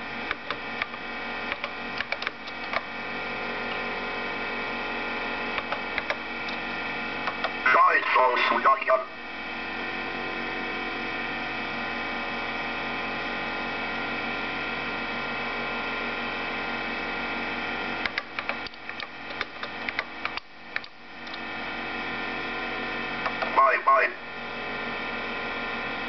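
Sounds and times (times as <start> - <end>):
computer electrical hum: 0.0 - 26.0
clicking keyboard keystrokes: 1.5 - 2.8, 5.6 - 6.6, 18.0 - 21.4.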